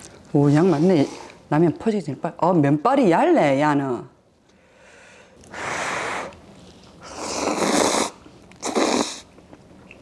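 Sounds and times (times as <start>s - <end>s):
person blowing on food: 5.5s - 6.3s, 7.0s - 9.3s
person slurping noodles: 7.0s - 9.3s.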